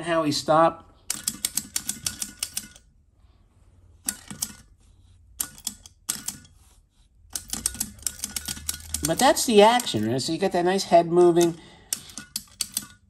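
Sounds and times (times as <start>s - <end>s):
wind-up toy clicking: 7.3s - 10.0s.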